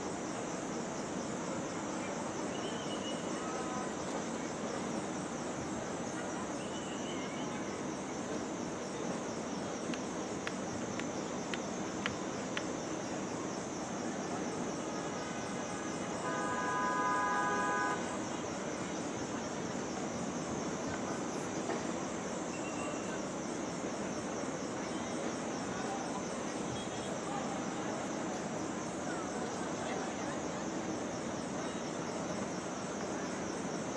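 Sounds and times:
traffic: 0:14.5 - 0:18.8
vehicle horn: 0:16.2 - 0:18.2.

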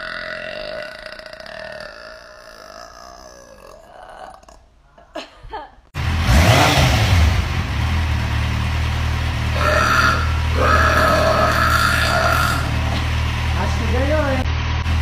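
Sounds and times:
woman burping: 0:00.0 - 0:05.8, 0:09.6 - 0:13.1
motorcycle engine rumbling: 0:06.0 - 0:15.0.

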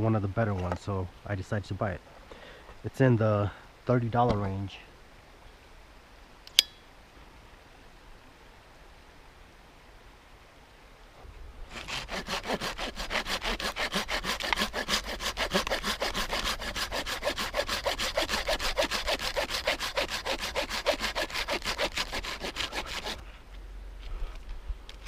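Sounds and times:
hand saw cutting wood: 0:11.7 - 0:23.2.

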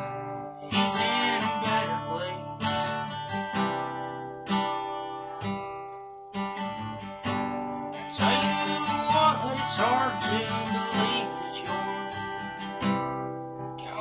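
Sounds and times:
man singing: 0:00.0 - 0:03.1, 0:08.0 - 0:12.4, 0:13.6 - 0:14.0
acoustic guitar strummed: 0:00.0 - 0:14.0.

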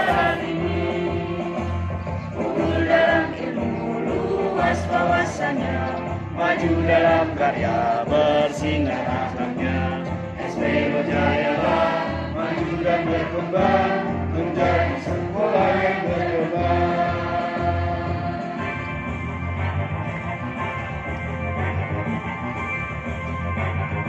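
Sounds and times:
group singing in unison: 0:00.0 - 0:18.9
accompaniment with steady beat: 0:00.0 - 0:24.0.

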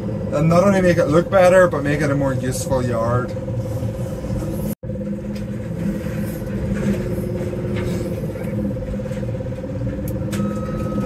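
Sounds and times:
loader engine running: 0:00.0 - 0:11.0.

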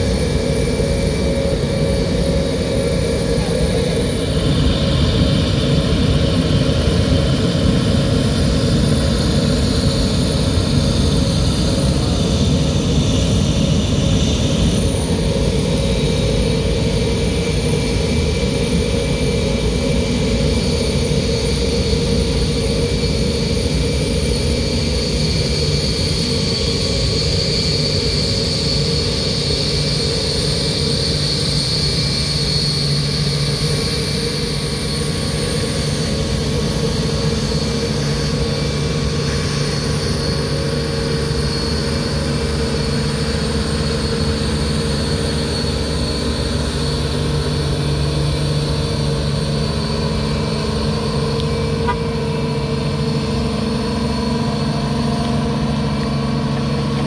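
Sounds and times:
low engine rumble: 0:00.0 - 0:28.4, 0:29.0 - 0:57.0
high turbine whine: 0:00.0 - 0:57.0.

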